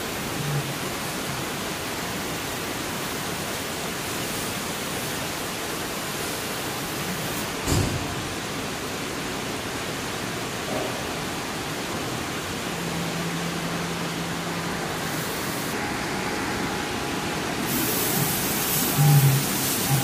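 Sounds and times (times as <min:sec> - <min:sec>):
laser cutter rushing noise: 0:13.2 - 0:20.0.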